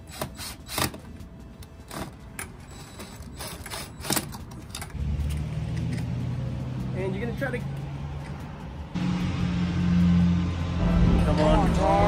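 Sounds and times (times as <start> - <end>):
vehicle engine humming: 4.3 - 12.0.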